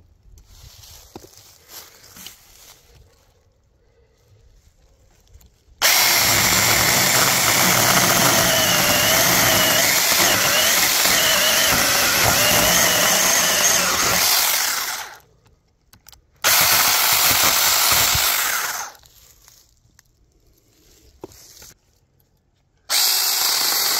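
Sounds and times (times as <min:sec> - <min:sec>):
mini chainsaw cutting log: 0:05.8 - 0:15.3, 0:16.4 - 0:19.0, 0:22.9 - 0:23.9.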